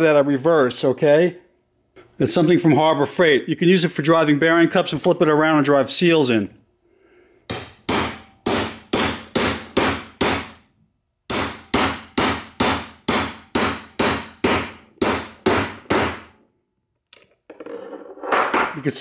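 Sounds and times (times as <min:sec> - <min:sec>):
hammer tapping on metal: 0:07.5 - 0:10.5, 0:11.3 - 0:16.3.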